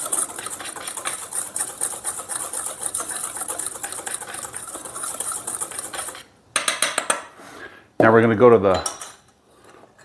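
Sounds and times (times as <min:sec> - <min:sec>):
wire whisk scraping metal bowl: 0:00.0 - 0:06.3.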